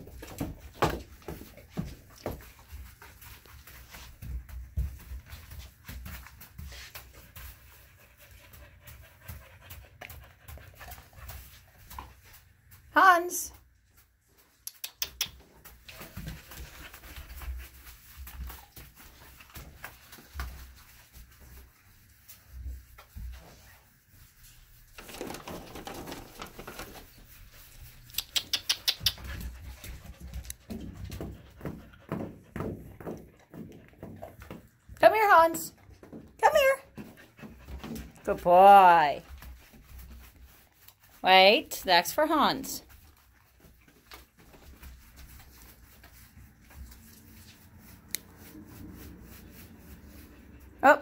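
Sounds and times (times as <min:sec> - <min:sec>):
dog paws scuffling on tile: 0:00.0 - 0:51.0
claw clicks on tiles: 0:28.2 - 0:29.3.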